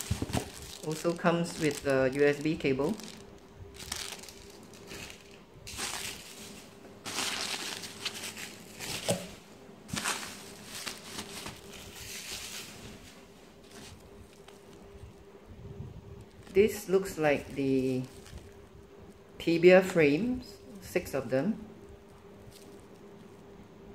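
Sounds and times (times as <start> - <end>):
plastic packaging crinkling: 0.0 - 15.3, 16.1 - 19.3, 22.1 - 23.5.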